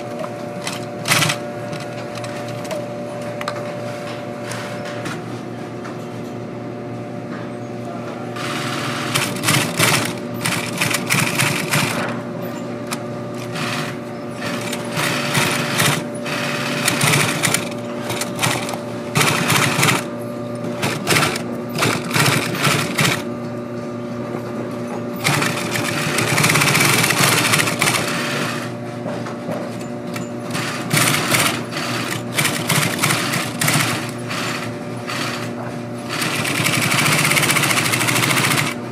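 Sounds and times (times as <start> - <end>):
sewing machine stitching: 0.6 - 1.4, 8.4 - 12.0, 13.4 - 20.1, 20.8 - 23.2, 25.2 - 28.7, 30.5 - 35.4, 36.1 - 38.8
machine humming: 8.3 - 29.1, 29.8 - 38.9.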